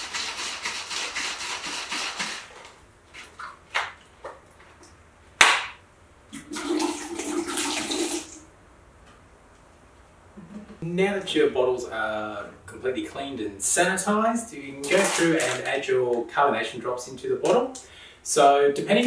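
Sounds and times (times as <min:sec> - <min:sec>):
sharp knock: 0:05.4 - 0:05.8
liquid sloshing in plastic bottle: 0:14.8 - 0:15.8.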